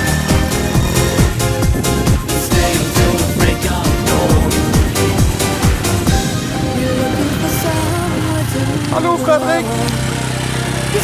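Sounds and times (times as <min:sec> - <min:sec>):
electronic dance music: 0:00.0 - 0:07.9.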